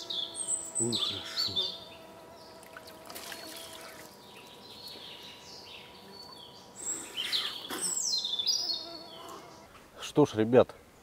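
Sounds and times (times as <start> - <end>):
small birds chirping: 0.0 - 11.0
trickling stream: 2.6 - 4.2
water splashing: 2.6 - 4.2.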